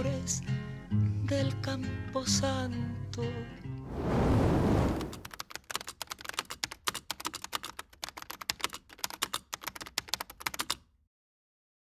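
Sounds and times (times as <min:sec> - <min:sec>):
keyboard typing: 0:05.1 - 0:10.9.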